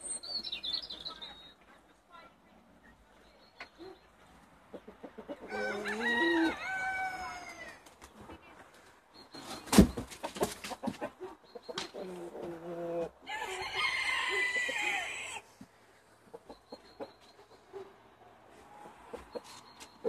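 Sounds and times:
rooster crowing: 5.5 - 7.8, 13.2 - 15.4.

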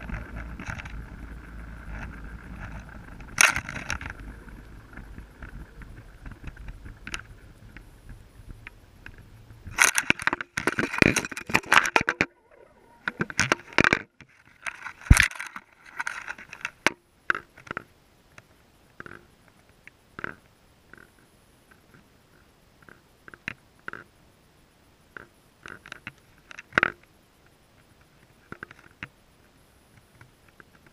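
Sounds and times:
camera scraping over stones: 0.0 - 7.5, 9.6 - 13.9
low underwater rumble: 0.0 - 9.8, 11.6 - 13.8.

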